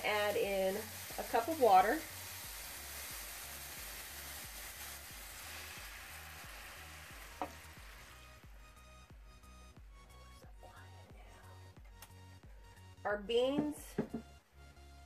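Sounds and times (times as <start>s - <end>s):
vegetables sizzling in frying pan: 0.0s - 8.6s.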